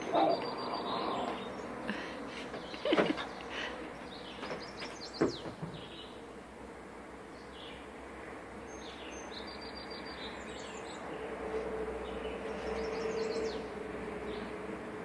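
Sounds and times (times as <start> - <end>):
small birds chirping: 0.0 - 6.4, 7.2 - 11.4, 12.0 - 14.6.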